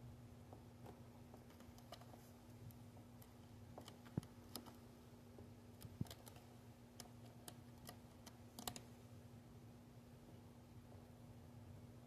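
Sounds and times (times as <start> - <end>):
faint low hum: 0.0 - 12.0
cat claws clicking on carpet: 0.8 - 4.9, 5.7 - 8.9.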